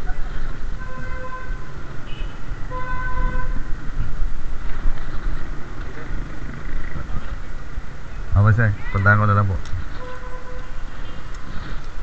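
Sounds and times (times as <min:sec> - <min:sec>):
street traffic rumble: 0:00.0 - 0:12.0
vehicle horn toot: 0:00.8 - 0:03.6, 0:09.9 - 0:11.2.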